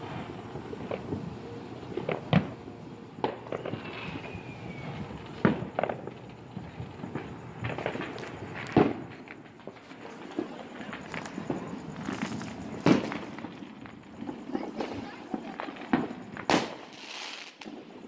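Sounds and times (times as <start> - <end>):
fireworks and firecrackers banging: 0.0 - 18.0
faint falling whistle: 3.5 - 5.4.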